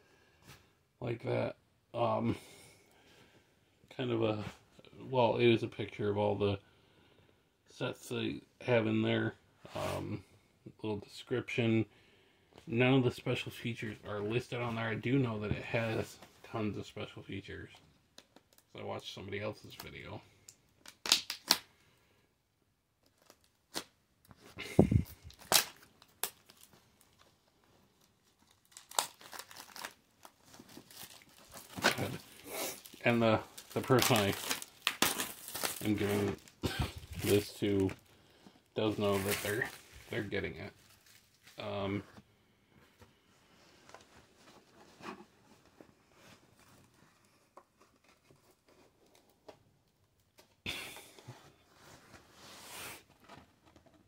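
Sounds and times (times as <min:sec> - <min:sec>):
plastic shrink wrap crinkling: 0:24.6 - 0:38.1, 0:38.7 - 0:41.6.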